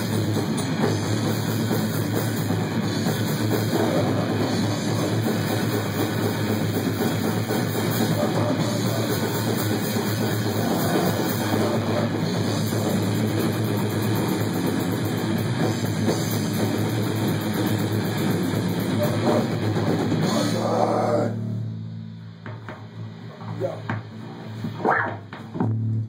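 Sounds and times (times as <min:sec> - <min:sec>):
bass guitar: 0:00.0 - 0:26.0
distorted electric guitar: 0:00.0 - 0:26.0
drum kit with fast cymbal hits: 0:00.0 - 0:26.0
growling vocals: 0:10.3 - 0:12.2, 0:19.0 - 0:21.6.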